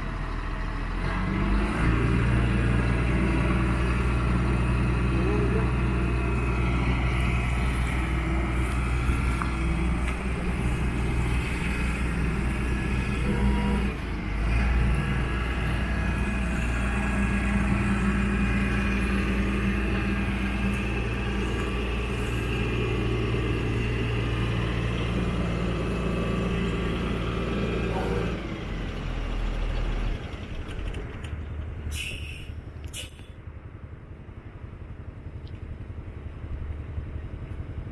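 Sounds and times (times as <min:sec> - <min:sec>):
diesel engine running: 0:00.0 - 0:37.9
short hisses: 0:31.9 - 0:33.4.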